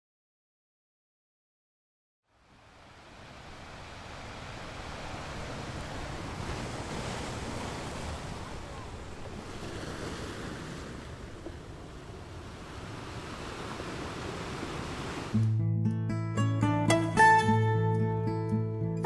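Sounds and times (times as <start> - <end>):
waves breaking on beach: 2.3 - 15.4.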